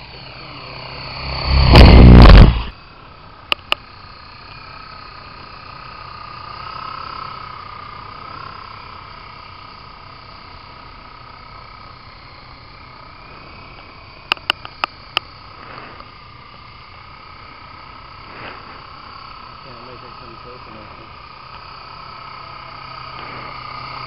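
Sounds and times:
model helicopter whine: 0:00.0 - 0:24.0
sharp clicks: 0:03.5 - 0:03.8, 0:14.3 - 0:15.3.

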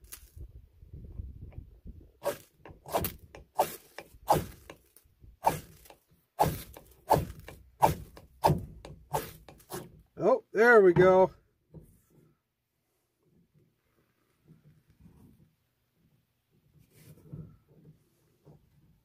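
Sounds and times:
wind rumble on microphone: 0:00.2 - 0:02.2
striker rasping on ferro rod: 0:02.2 - 0:10.0.

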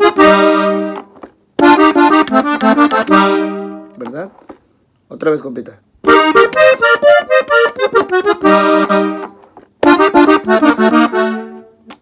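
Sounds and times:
button accordion runs: 0:00.0 - 0:03.8, 0:06.1 - 0:11.6.

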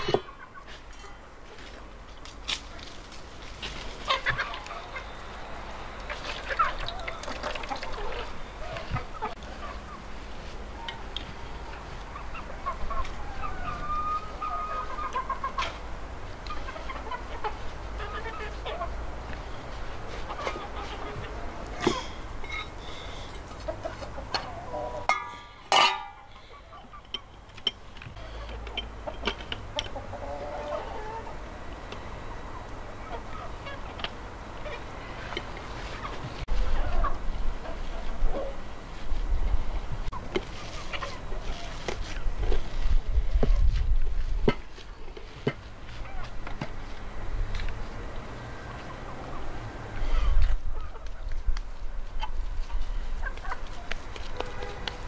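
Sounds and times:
chickens clucking: 0:00.0 - 0:55.0
chicken squawking: 0:04.0 - 0:05.2, 0:06.1 - 0:10.0, 0:12.1 - 0:15.8, 0:16.5 - 0:19.0.

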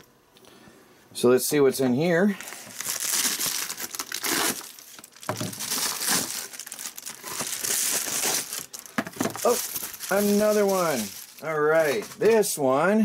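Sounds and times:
plastic mailer crinkling: 0:02.4 - 0:12.5.

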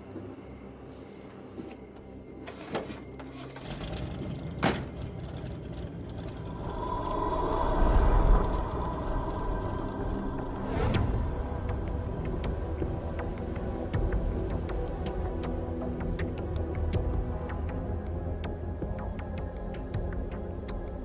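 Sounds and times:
low rumble: 0:03.8 - 0:17.5.

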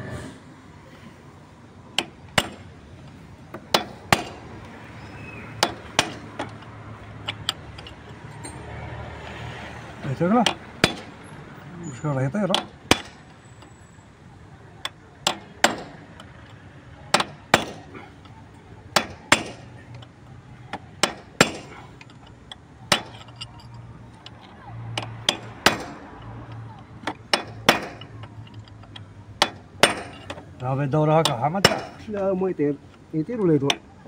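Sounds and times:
hammer striking steel chisel: 0:02.0 - 0:02.7, 0:03.5 - 0:08.6, 0:10.4 - 0:11.2, 0:12.5 - 0:13.3, 0:14.8 - 0:16.0, 0:17.1 - 0:18.0, 0:18.9 - 0:20.1, 0:20.7 - 0:22.3, 0:22.9 - 0:30.5, 0:31.2 - 0:32.1.

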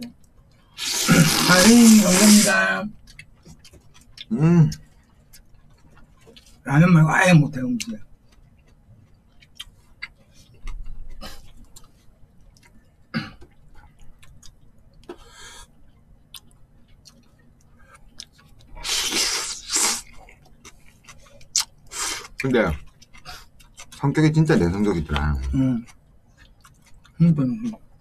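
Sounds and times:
noodles slurping: 0:00.8 - 0:02.6
person chewing: 0:03.0 - 0:06.6, 0:08.3 - 0:28.0.

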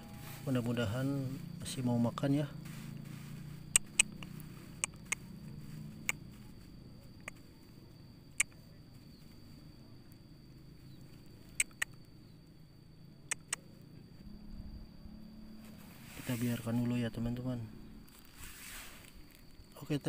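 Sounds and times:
steady high-pitched whine: 0:00.0 - 0:20.0
sharp isolated clicks: 0:03.7 - 0:05.3, 0:07.2 - 0:07.4, 0:08.4 - 0:08.6, 0:11.6 - 0:12.0, 0:13.3 - 0:13.6.

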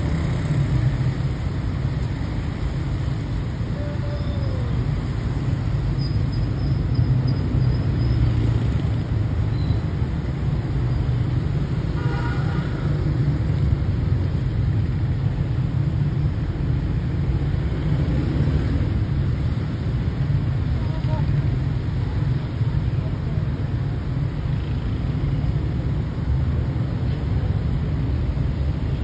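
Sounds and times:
city street traffic rumble: 0:00.0 - 0:29.0.

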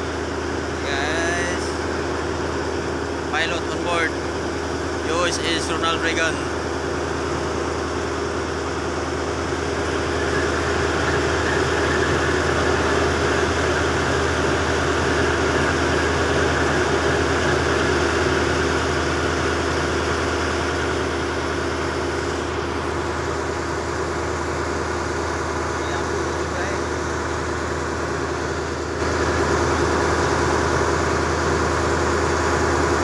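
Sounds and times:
boat engine humming: 0:00.0 - 0:33.0.

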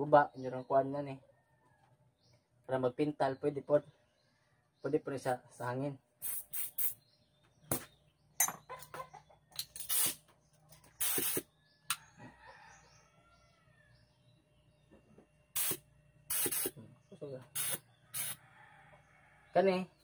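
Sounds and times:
birds calling faintly: 0:00.0 - 0:20.0
compressed air hissing: 0:06.2 - 0:07.0, 0:09.8 - 0:10.2, 0:11.0 - 0:11.5, 0:15.5 - 0:16.8, 0:17.5 - 0:18.4.

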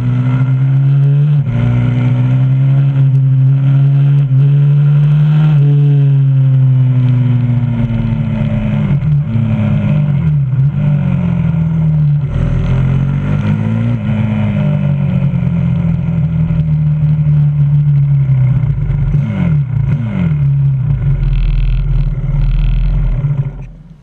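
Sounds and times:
motorbike engine running: 0:06.2 - 0:24.0.

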